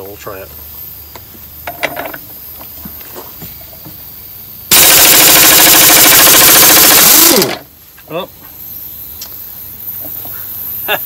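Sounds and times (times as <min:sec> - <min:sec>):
pneumatic impact wrench hammering: 0:01.6 - 0:02.3, 0:04.7 - 0:07.7.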